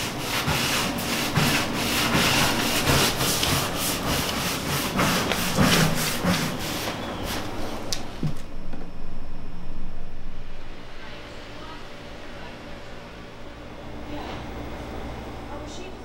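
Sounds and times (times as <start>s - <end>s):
broom sweeping gritty floor: 0.0s - 7.9s.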